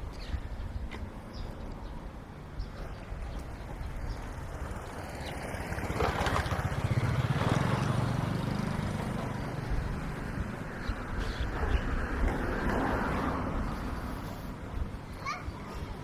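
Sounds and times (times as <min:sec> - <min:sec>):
motor engine passing by: 0:02.7 - 0:14.6.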